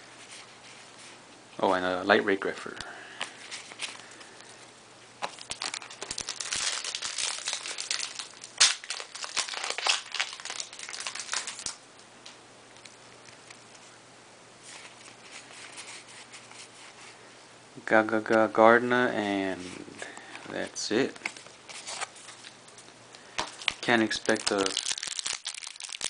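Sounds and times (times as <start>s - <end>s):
foil wrapper crinkling: 5.2s - 11.8s, 21.0s - 26.0s
trading cards rustling: 5.2s - 11.8s, 19.4s - 26.0s.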